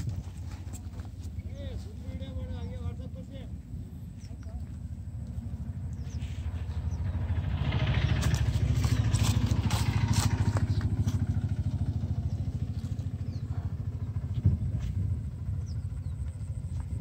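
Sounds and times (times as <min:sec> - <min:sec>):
small engine putter: 0:07.2 - 0:13.3.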